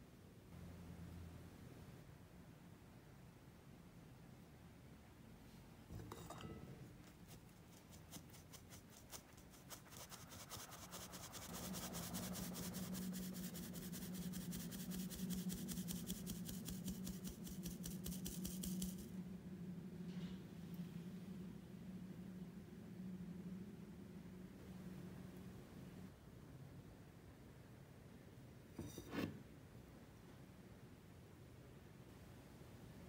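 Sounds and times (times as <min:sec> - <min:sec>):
low steady hum: 0:00.0 - 0:33.0
flour sifting through mesh sieve: 0:07.0 - 0:19.1.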